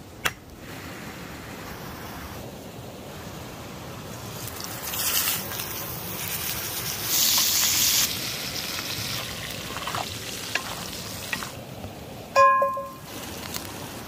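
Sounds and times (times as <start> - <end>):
steak sizzling in hot oil: 4.4 - 11.6.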